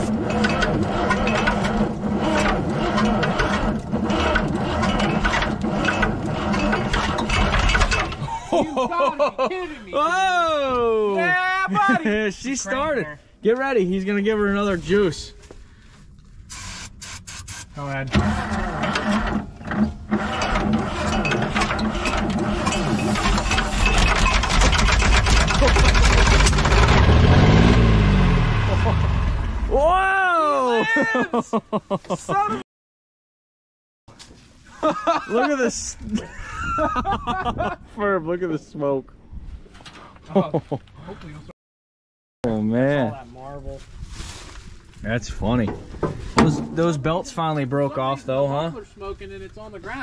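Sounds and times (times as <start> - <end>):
starter cranking truck engine: 0.0 - 8.3, 18.1 - 28.8.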